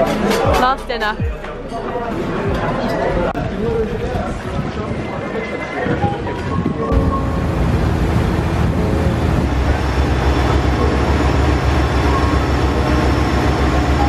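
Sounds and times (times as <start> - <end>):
ferry engine low rumble: 6.9 - 14.0
rushing churning wake: 7.0 - 14.0.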